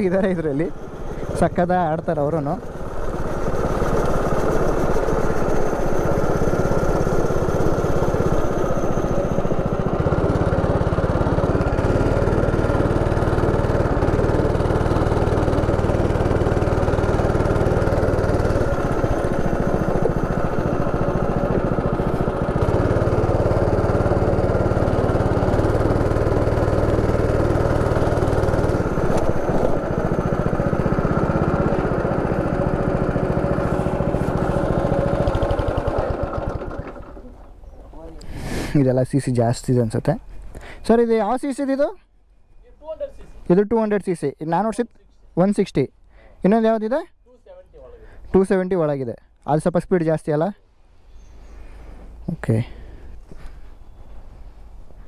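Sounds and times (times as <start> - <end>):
go-kart engine running: 0.0 - 37.7.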